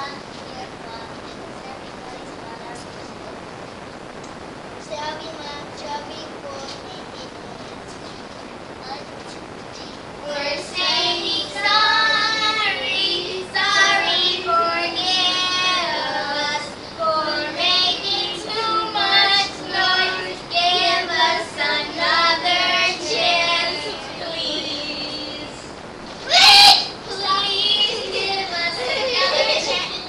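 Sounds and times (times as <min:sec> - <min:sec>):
children singing: 0:10.2 - 0:25.6, 0:26.4 - 0:30.0.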